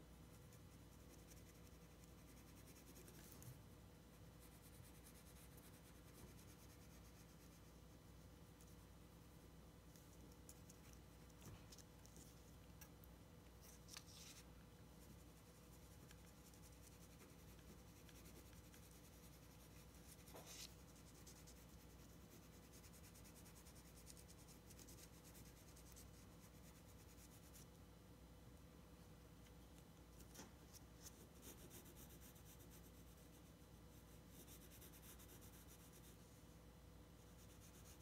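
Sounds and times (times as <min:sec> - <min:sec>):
pencil scratching on paper: 0:00.4 - 0:03.5, 0:04.3 - 0:07.7, 0:13.9 - 0:27.7, 0:31.0 - 0:36.2, 0:37.3 - 0:38.0.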